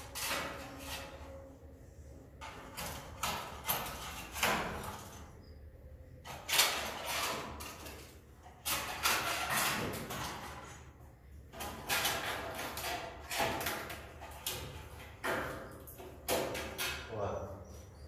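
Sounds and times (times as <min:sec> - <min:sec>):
pole scraper scraping wood: 0:06.3 - 0:10.4.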